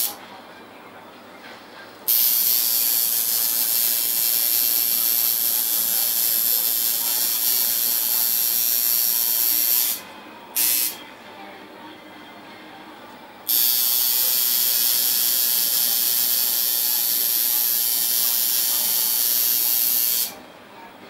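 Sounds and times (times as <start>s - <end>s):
tattoo machine buzzing: 2.1s - 10.0s, 10.6s - 11.0s, 13.5s - 20.4s.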